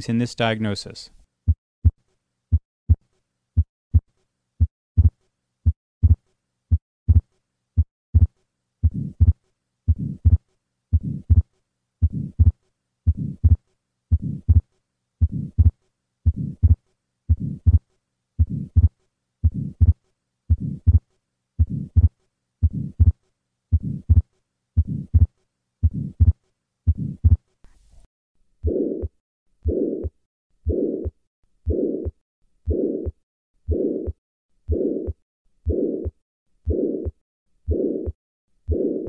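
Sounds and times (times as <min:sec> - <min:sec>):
heartbeat: 0:01.5 - 0:03.0, 0:03.6 - 0:17.8, 0:18.4 - 0:21.0, 0:21.6 - 0:27.4, 0:28.6 - 0:30.1, 0:30.7 - 0:32.1, 0:32.7 - 0:39.0
soft heart murmur: 0:04.6 - 0:05.2, 0:06.0 - 0:10.4, 0:11.0 - 0:17.8, 0:18.4 - 0:21.0, 0:21.6 - 0:27.4.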